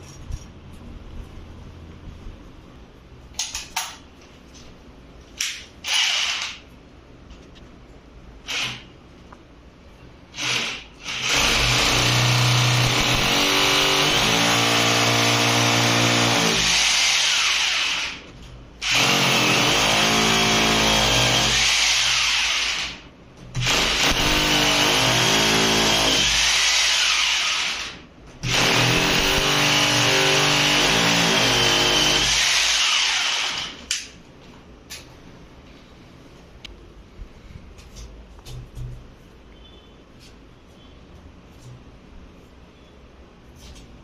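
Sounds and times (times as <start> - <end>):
electric drill boring into wall: 5.8 - 6.6, 8.4 - 8.9, 10.3 - 23.0, 23.6 - 33.9.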